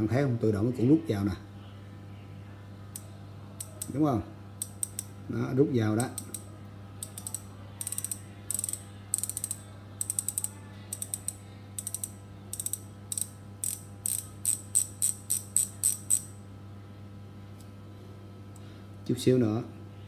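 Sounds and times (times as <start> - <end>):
freehub pawls clicking: 7.0 - 16.3.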